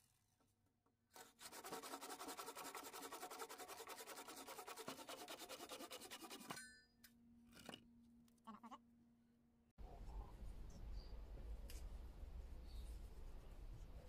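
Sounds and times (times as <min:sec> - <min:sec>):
handsaw cutting wood: 0:01.2 - 0:06.5.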